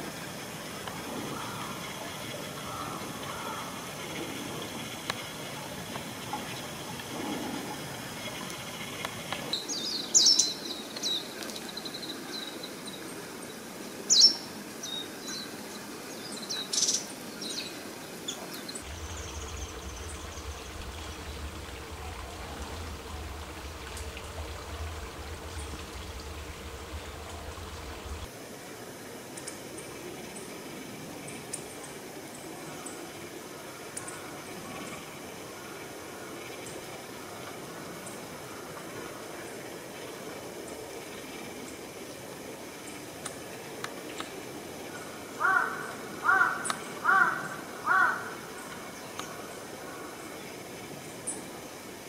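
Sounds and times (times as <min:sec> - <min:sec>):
shallow running water: 0:00.0 - 0:52.0
songbird chirping: 0:16.3 - 0:28.3
low hum: 0:18.8 - 0:28.3.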